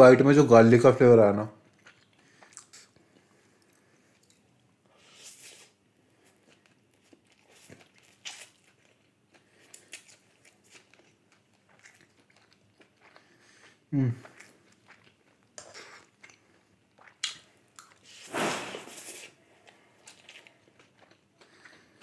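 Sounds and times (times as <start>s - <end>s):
chewing and wet mouth clicks: 1.7s - 4.6s, 6.4s - 18.0s
lip smacks: 17.0s - 19.4s
soft slurping: 17.9s - 19.8s.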